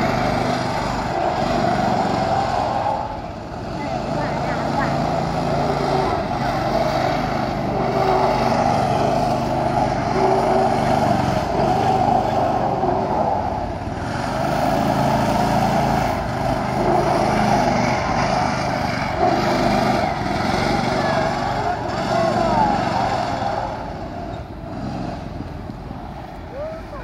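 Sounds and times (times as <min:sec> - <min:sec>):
go-kart engine running: 0:00.0 - 0:27.0.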